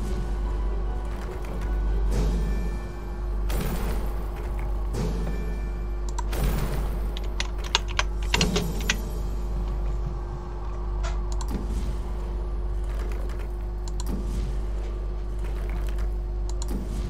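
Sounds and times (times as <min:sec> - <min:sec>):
steady low hum: 0:00.0 - 0:17.0
keyboard typing: 0:07.1 - 0:09.0.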